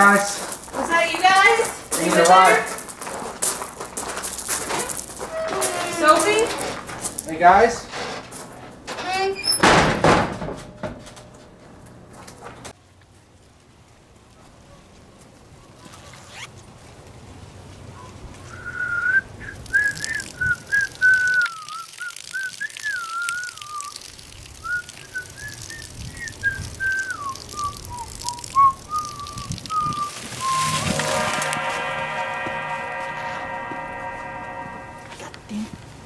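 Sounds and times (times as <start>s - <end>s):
person whistling a tune: 18.6s - 23.9s, 24.6s - 31.1s
droning chord: 30.4s - 36.0s.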